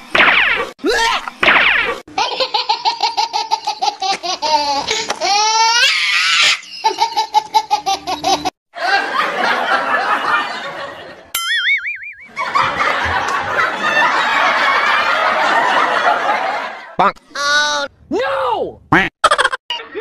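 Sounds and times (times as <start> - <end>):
laughter: 2.2 - 5.4, 6.7 - 11.3, 12.3 - 17.0, 19.2 - 20.0
wobbling cartoon tone: 11.4 - 12.4.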